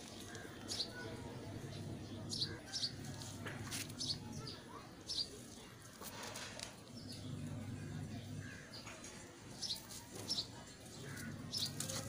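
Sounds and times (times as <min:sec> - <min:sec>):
small birds chirping: 0:00.0 - 0:12.0
faint low hum: 0:06.9 - 0:09.0.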